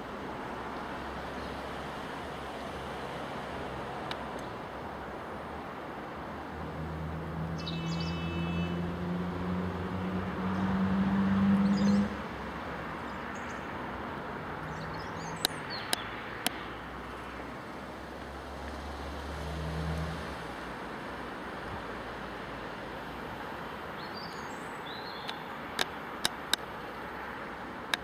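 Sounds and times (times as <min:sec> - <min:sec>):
bird chirps: 0:07.6 - 0:08.8, 0:24.0 - 0:25.5
sharp clicks: 0:25.2 - 0:26.7.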